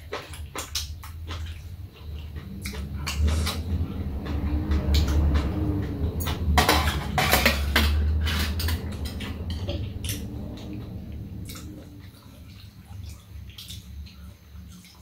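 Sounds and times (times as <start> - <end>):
low steady hum: 0.0 - 15.0
metal utensils clinking on bowls: 6.2 - 10.2.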